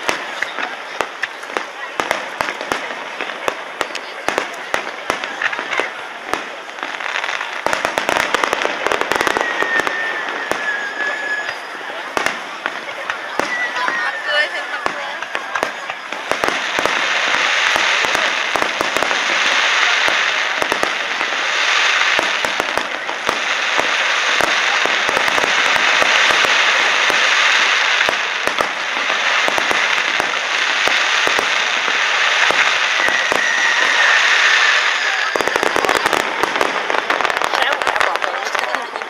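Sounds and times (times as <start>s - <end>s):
fireworks crackling and popping: 0.0s - 39.0s
firework whistle: 7.3s - 37.4s.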